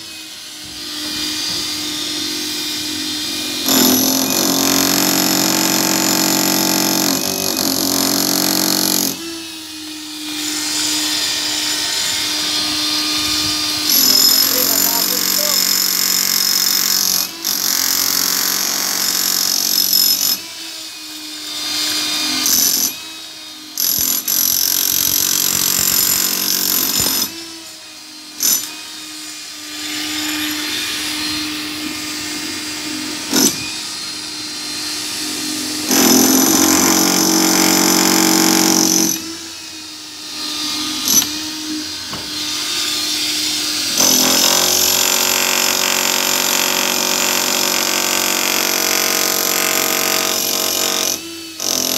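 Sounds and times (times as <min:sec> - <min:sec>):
demolition hammer chiselling concrete: 0:00.8 - 0:09.5, 0:10.3 - 0:20.7, 0:21.6 - 0:23.2, 0:23.8 - 0:27.6, 0:31.1 - 0:33.8, 0:35.7 - 0:39.8, 0:42.2 - 0:51.9.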